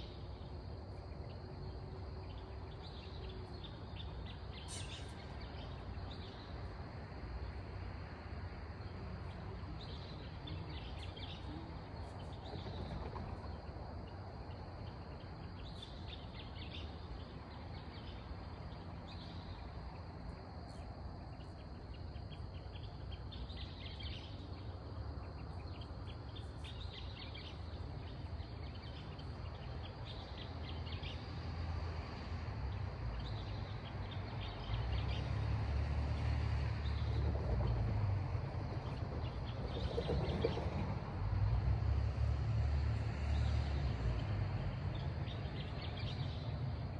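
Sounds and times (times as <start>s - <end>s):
rapid chirping trills: 38.6s - 40.8s.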